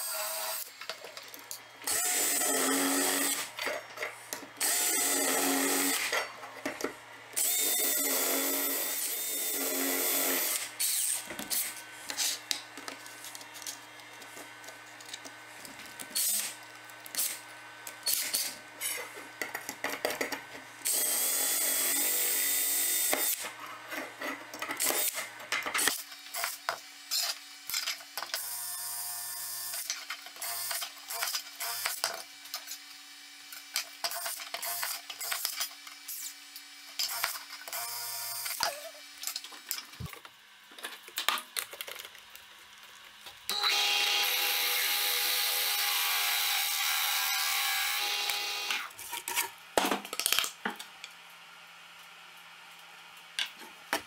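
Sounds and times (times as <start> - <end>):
drill boring into metal: 0.0 - 0.8, 1.8 - 3.5, 4.6 - 6.1, 7.4 - 11.7, 16.1 - 16.6, 20.8 - 23.4, 43.5 - 48.9
drill bits and tools rattling: 0.0 - 6.8, 7.4 - 12.5, 24.6 - 28.4.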